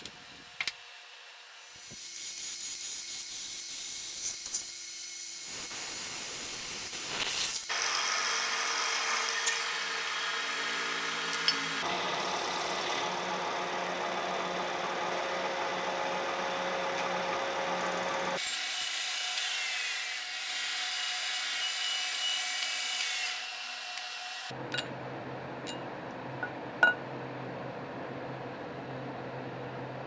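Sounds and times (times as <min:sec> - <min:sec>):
milling machine spindle running: 0:10.7 - 0:18.5.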